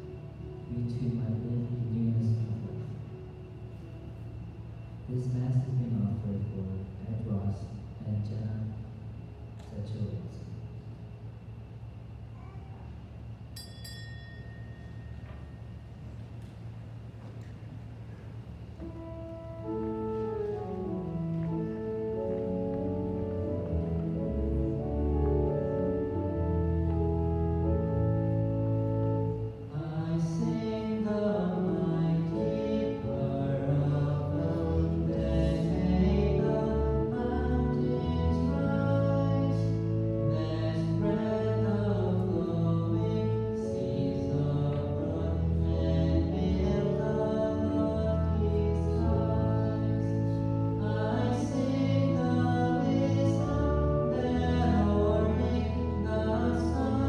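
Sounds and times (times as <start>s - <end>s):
sustained instrumental chords: 18.6s - 57.0s
person singing: 29.7s - 57.0s.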